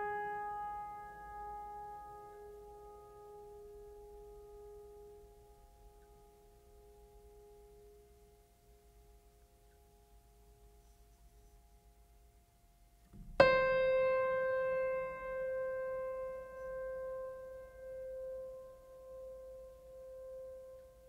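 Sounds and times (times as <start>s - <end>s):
piano note ringing: 13.2s - 21.0s.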